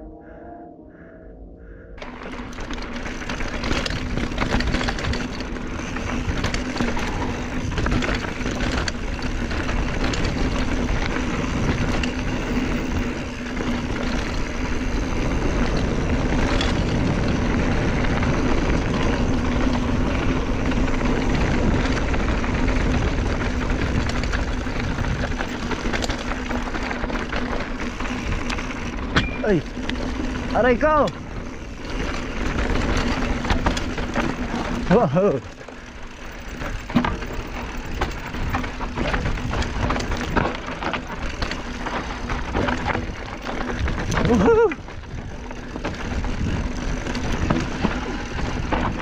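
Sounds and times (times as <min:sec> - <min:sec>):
steady hum: 0:00.0 - 0:04.5
wind buffeting microphone: 0:00.0 - 0:34.9, 0:35.9 - 0:49.0
bike rattling over rocks: 0:02.0 - 0:49.0
tyres rolling over dirt: 0:02.0 - 0:49.0.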